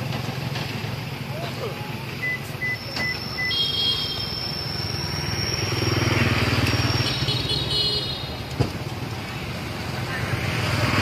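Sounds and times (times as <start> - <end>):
vehicle engine passing: 4.4 - 7.7, 8.9 - 11.0.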